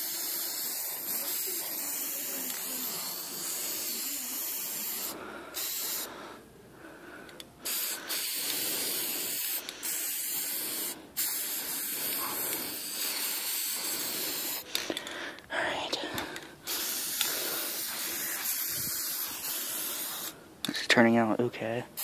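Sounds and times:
spray paint can hissing: 0:00.0 - 0:06.1, 0:07.6 - 0:14.8, 0:16.6 - 0:20.4.

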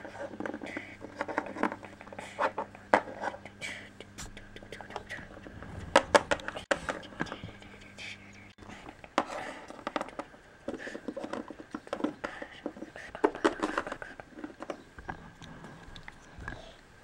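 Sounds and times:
person whispering: 0:03.6 - 0:08.9.

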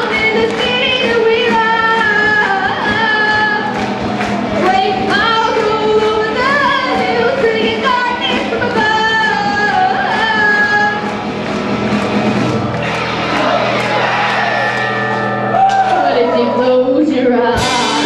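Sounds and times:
female vocal singing: 0:00.0 - 0:03.8, 0:04.6 - 0:11.0, 0:16.0 - 0:18.0
bass guitar: 0:00.0 - 0:18.0
electric guitar: 0:00.0 - 0:18.0
drum kit beat: 0:17.6 - 0:18.0.

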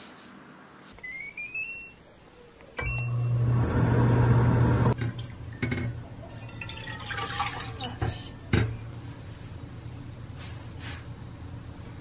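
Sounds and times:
appliance beep: 0:01.0 - 0:02.0, 0:02.8 - 0:04.8
low machine hum: 0:02.8 - 0:12.0.

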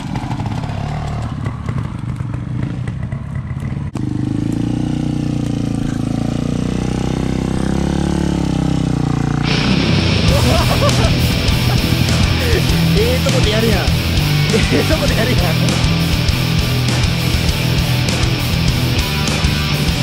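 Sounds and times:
motorcycle engines at low revs: 0:00.0 - 0:20.0
music: 0:09.4 - 0:20.0.

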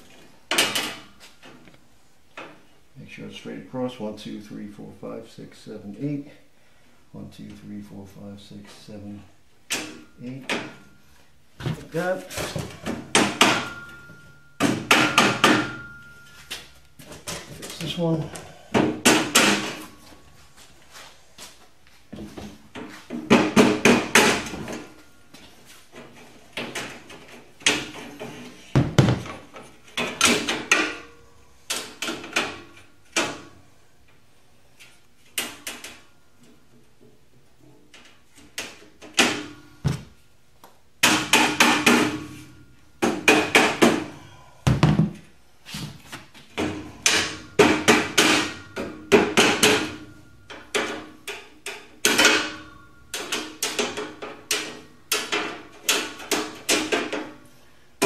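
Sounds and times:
rubber mallet knocking steel beams: 0:41.0 - 0:42.4, 0:43.0 - 0:44.1, 0:46.6 - 0:50.0.

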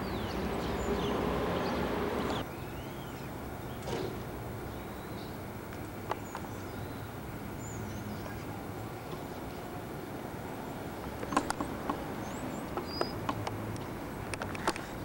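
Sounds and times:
quiet hum: 0:00.0 - 0:15.0
steady outdoor noise: 0:00.0 - 0:15.0
sharp clicks: 0:11.0 - 0:12.0.

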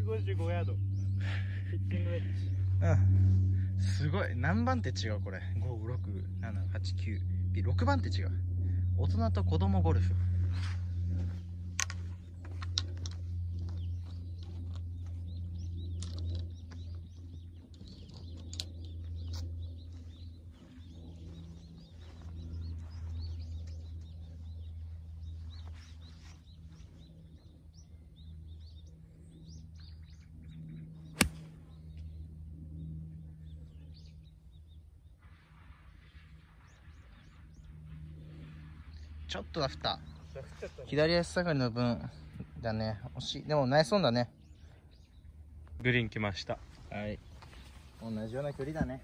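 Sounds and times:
low steady rumble: 0:00.0 - 0:49.0
small birds chirping: 0:00.0 - 0:49.0
golf club striking ball: 0:31.2 - 0:31.6.

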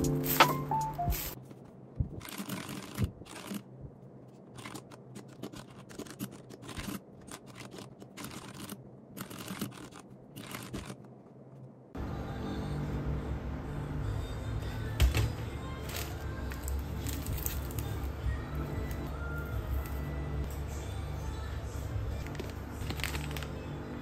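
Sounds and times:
music: 0:00.0 - 0:01.4, 0:12.0 - 0:24.0
mechanical keyboard typing: 0:04.6 - 0:11.0.

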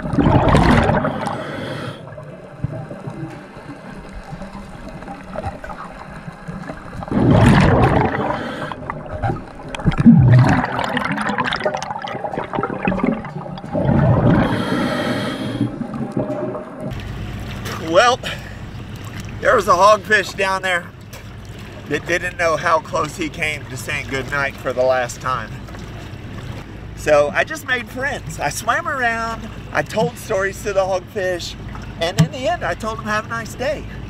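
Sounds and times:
rushes of bubbling water: 0:00.0 - 0:19.4
underwater sloshing and gurgling: 0:00.0 - 0:34.0.

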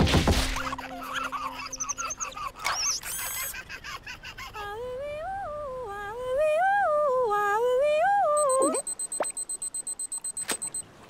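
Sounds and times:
woman humming a tune: 0:04.6 - 0:08.9.

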